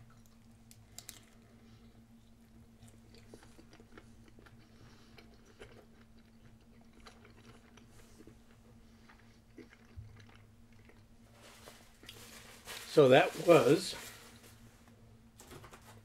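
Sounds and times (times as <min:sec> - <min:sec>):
low steady hum: 0:00.0 - 0:16.0
person chewing: 0:00.1 - 0:11.3.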